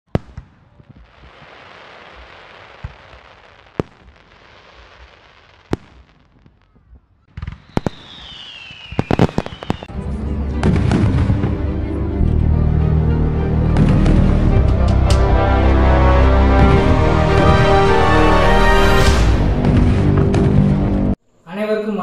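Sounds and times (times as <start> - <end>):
fireworks bangs: 0.1 - 10.0, 10.6 - 11.6, 13.7 - 21.1
fireworks hissing: 0.9 - 6.4, 7.4 - 9.9
falling whistle: 7.6 - 9.9
music: 9.9 - 21.2.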